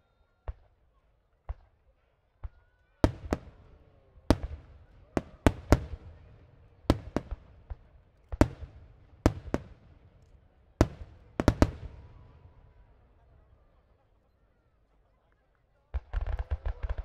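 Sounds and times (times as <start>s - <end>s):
fireworks bursting with echo: 2.4s - 13.6s, 15.9s - 17.0s.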